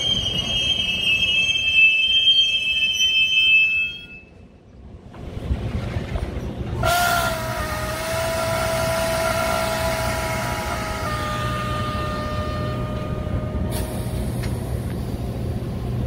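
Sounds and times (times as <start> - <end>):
train wheels squealing: 0.0 - 4.4.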